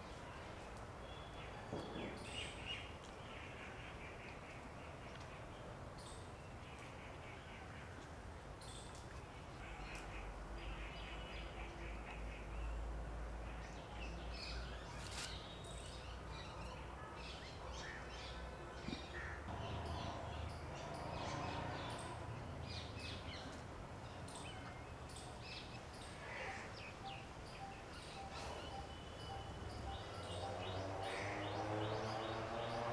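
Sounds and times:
small birds chirping: 13.6 - 32.9.

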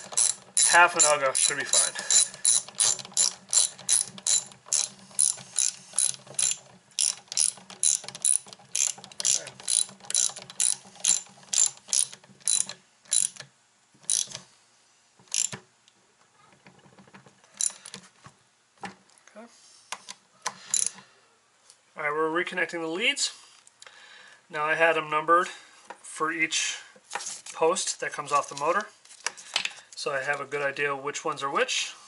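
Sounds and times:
ratchet wrench clicking: 0.0 - 14.4, 15.3 - 15.6, 17.6 - 17.9, 20.7 - 20.9.

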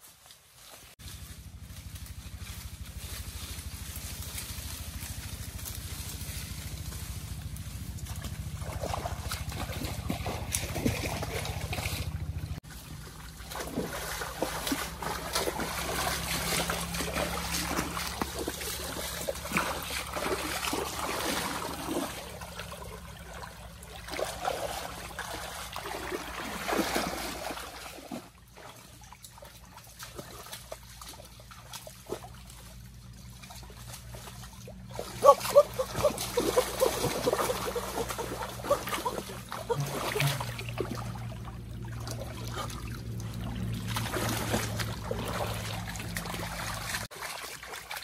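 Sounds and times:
rustling and snapping undergrowth: 0.0 - 11.3
stream trickling: 0.2 - 48.0
people wading with splashes: 1.1 - 48.0.

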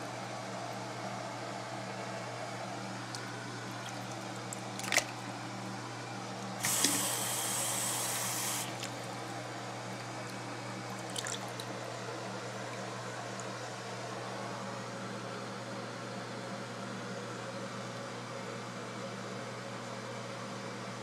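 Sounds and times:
water splashing in sink: 3.8 - 5.3, 6.6 - 9.1, 11.0 - 11.8.

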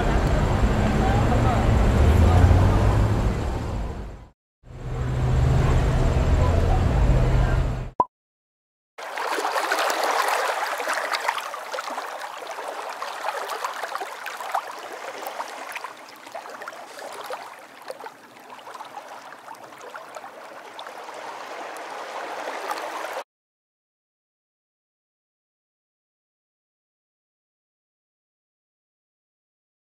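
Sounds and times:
water running and bubbling: 9.0 - 23.2.

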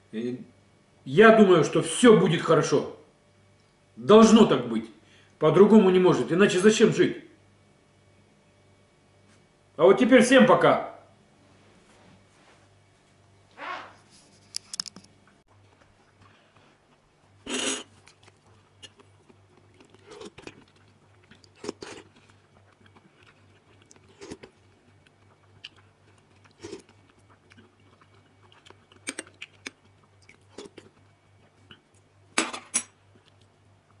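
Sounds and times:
chewing: 15.6 - 32.1, 33.1 - 34.0.

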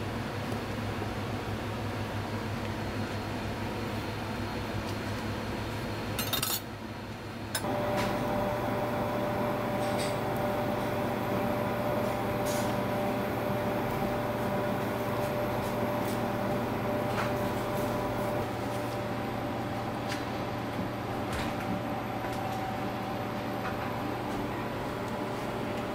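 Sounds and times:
kitchen machinery hum: 5.9 - 25.9.

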